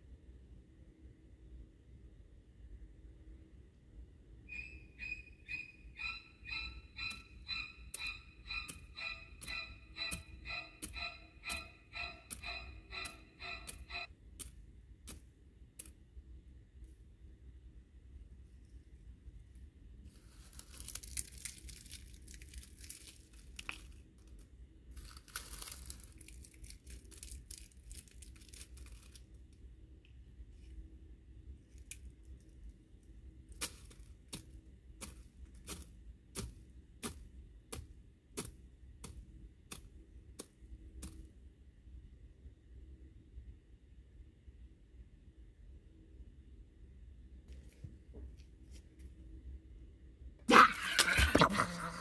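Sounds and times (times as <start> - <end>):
debris rustling and crinkling: 20.0 - 29.4.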